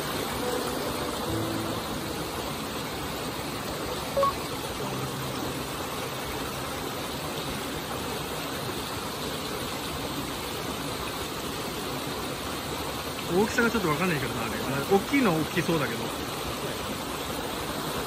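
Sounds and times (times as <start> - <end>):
small waterfall rushing into pool: 0.0 - 18.0
short electronic beep: 4.2 - 4.4.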